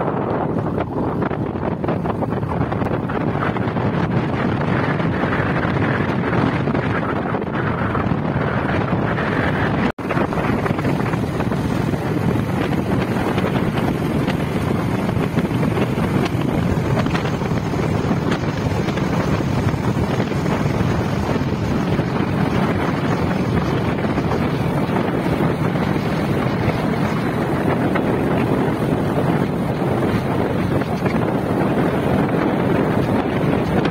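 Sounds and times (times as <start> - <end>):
wind buffeting microphone: 0.0 - 33.9
vehicle on gravel road: 10.0 - 33.9.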